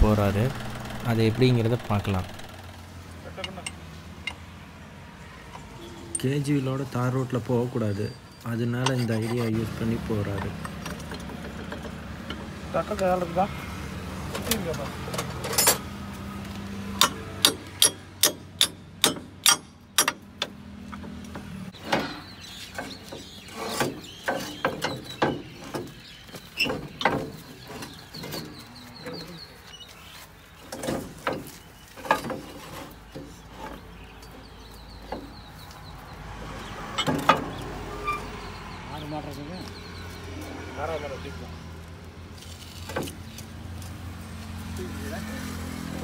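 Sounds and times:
metal knocks and clanks: 0.0s - 4.4s, 36.9s - 38.2s
sharp metallic clicks: 0.0s - 4.4s, 17.0s - 21.4s.

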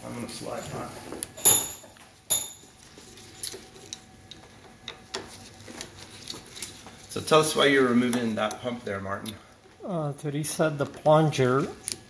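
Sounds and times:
metal tools clinking on metal: 1.4s - 2.7s.

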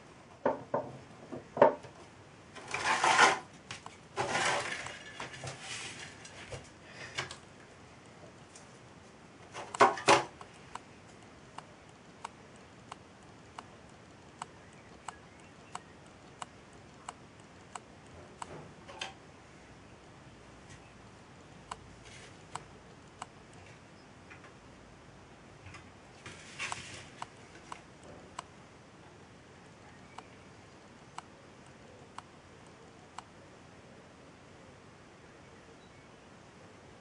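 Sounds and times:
small objects clattering on a bench: 0.4s - 7.4s, 9.5s - 10.4s
light evenly spaced ticks: 10.4s - 18.6s, 19.7s - 36.6s.

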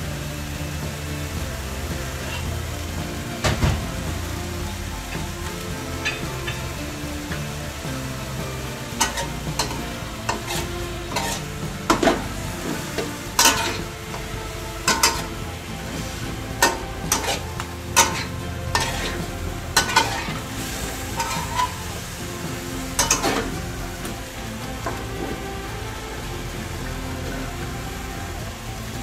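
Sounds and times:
food sizzling: 0.0s - 29.0s
metal spatula scraping a wok: 3.8s - 25.4s.

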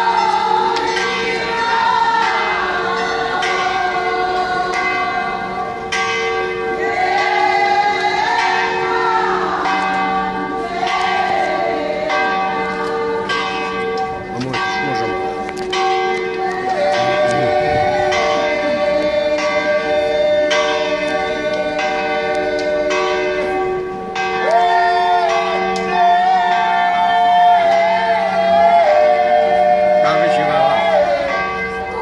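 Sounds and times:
church bells ringing: 0.0s - 32.0s
person singing: 16.3s - 23.3s, 24.4s - 32.0s.

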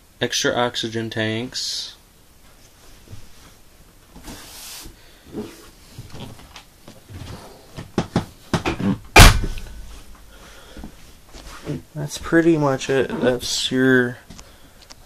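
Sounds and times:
lid closing bang: 9.2s - 9.6s.

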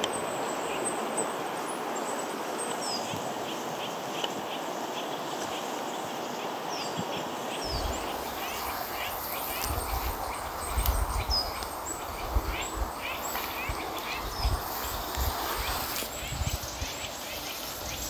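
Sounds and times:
songbirds calling: 0.0s - 18.0s
microphone wind rumble: 7.6s - 18.0s.

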